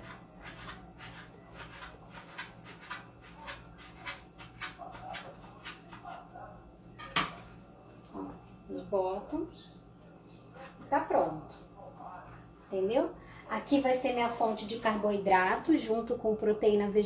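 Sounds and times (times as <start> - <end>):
knife cutting fresh herbs: 0.0 - 6.3.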